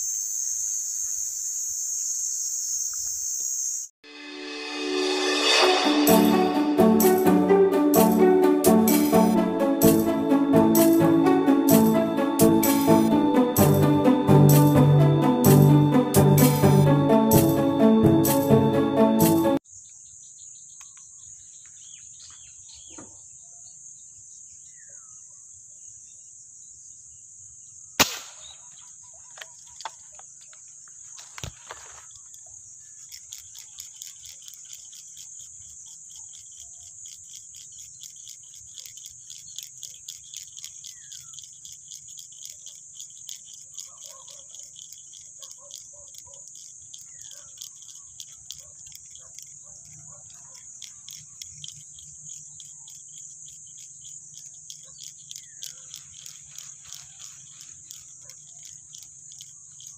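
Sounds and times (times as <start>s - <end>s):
insects chorus: 0.0s - 59.9s
fast pulsing trill: 4.0s - 19.6s, 32.9s - 59.9s
sharp click: 28.0s - 28.6s.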